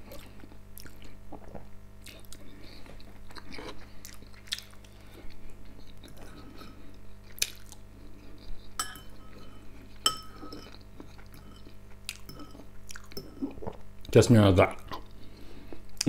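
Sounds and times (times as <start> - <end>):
cutlery clinking on ceramic bowls: 8.8 - 13.4.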